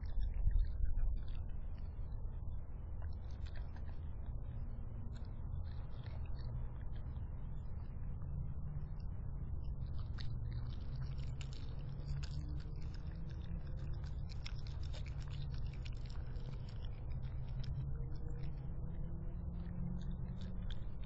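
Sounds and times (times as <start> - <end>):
raccoon chewing and crunching: 0.0 - 21.0
steady low hum: 0.0 - 21.0.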